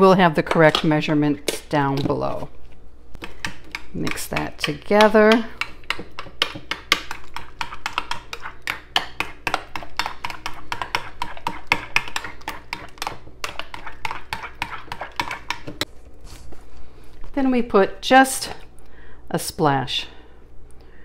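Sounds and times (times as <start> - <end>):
spoon stirring in ceramic bowl: 0.5 - 16.5.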